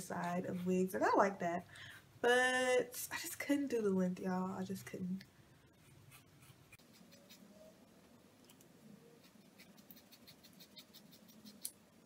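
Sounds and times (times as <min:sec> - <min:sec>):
scissors snipping hair: 0:08.4 - 0:11.8.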